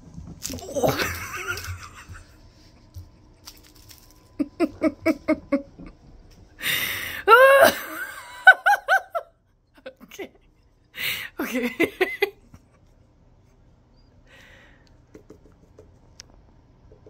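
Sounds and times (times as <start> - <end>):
person laughing hard: 0.6 - 2.4, 4.4 - 5.9, 7.2 - 9.2, 11.3 - 12.4.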